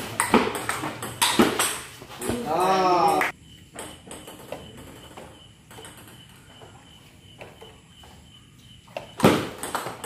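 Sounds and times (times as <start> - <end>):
ping-pong ball tapping: 0.1 - 2.4, 9.6 - 10.0.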